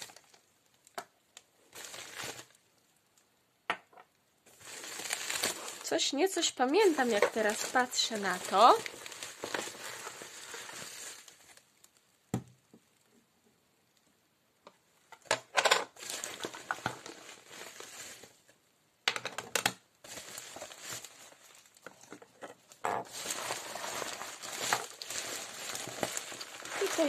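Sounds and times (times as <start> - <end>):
plastic packaging crinkling: 0.0 - 3.2, 4.5 - 12.2, 15.3 - 18.5, 20.0 - 27.0
small items set down on table: 3.7 - 4.1.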